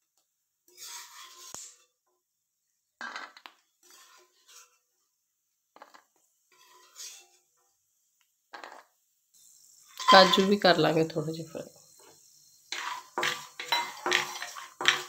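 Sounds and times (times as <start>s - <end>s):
steel spoon scraping a pan: 0.7s - 1.9s, 3.8s - 4.9s, 6.5s - 7.5s, 9.7s - 11.0s, 11.8s - 15.0s.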